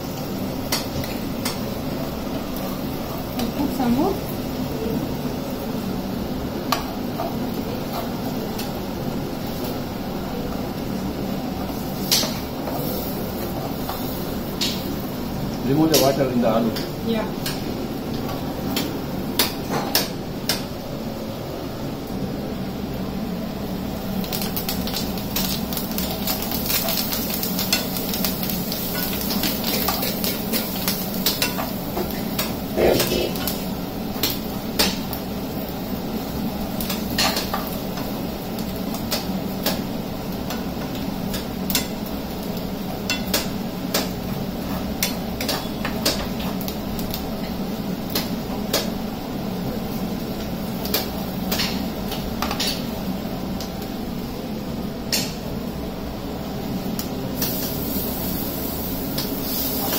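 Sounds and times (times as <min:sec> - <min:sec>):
steady hiss: 0:56.6 - 0:59.9.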